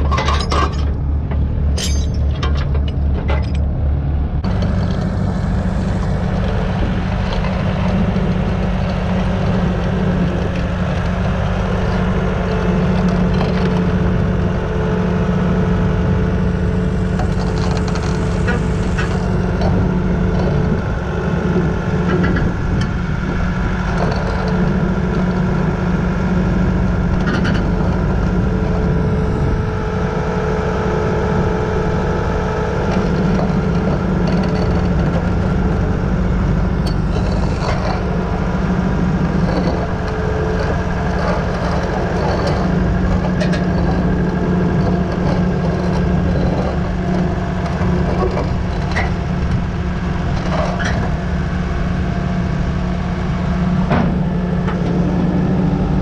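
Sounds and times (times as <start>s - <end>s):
steel tracks clanking: 0.0s - 3.8s, 27.2s - 52.0s
diesel engine running: 0.0s - 56.0s.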